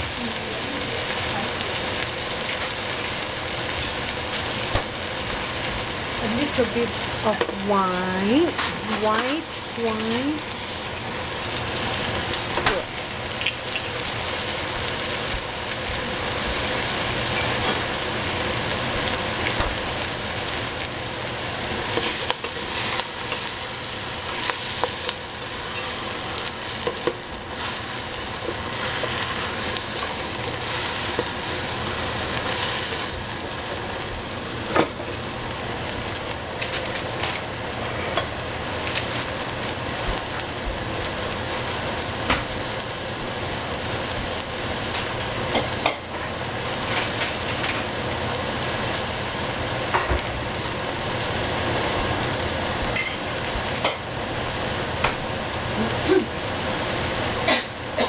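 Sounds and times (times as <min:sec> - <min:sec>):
vegetables sizzling in a pan: 0:00.0 - 0:58.0
utensil stirring against pan: 0:21.6 - 0:35.1.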